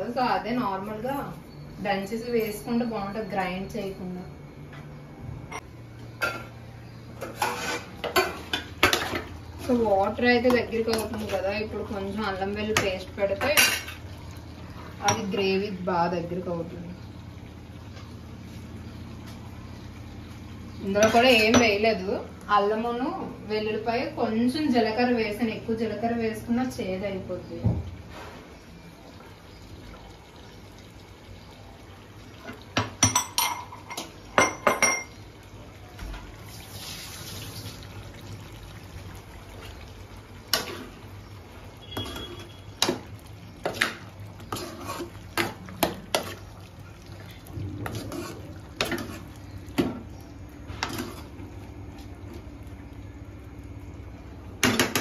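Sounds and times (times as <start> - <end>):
ladle clinking and scraping pan: 7.2 - 9.2.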